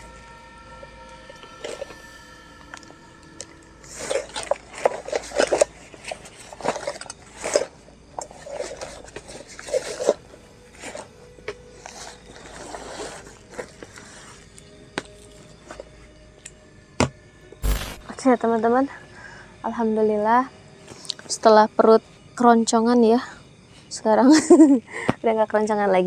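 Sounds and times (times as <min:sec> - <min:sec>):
bags and fabric rustling: 0:03.8 - 0:15.8.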